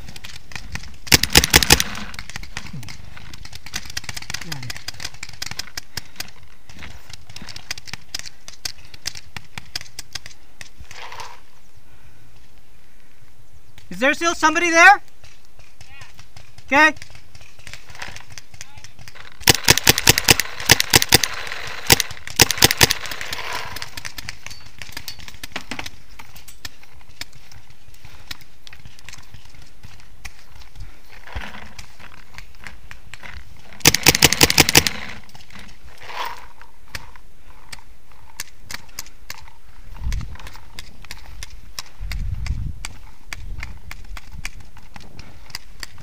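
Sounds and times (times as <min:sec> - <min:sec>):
paintball marker firing: 0:00.1 - 0:06.4, 0:15.2 - 0:26.0, 0:33.8 - 0:35.2.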